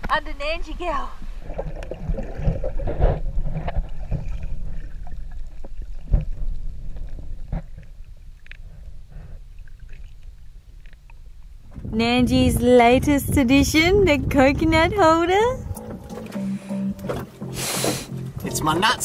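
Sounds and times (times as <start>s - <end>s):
water splashing: 1.1s - 11.5s
low underwater rumble: 1.2s - 18.8s.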